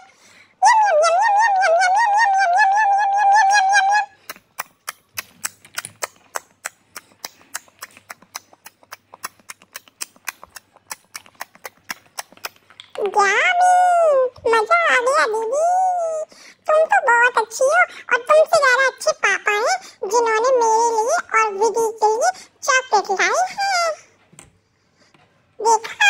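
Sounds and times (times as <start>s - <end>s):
dog chewing crunchy snacks: 4.2s - 13.0s.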